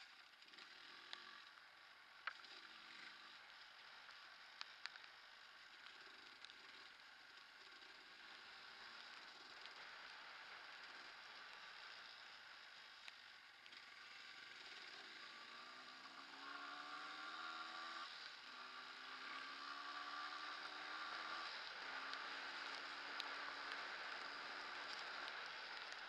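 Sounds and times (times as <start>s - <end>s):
steady hiss: 0.0s - 26.0s
motorcycle engine accelerating: 13.8s - 26.0s.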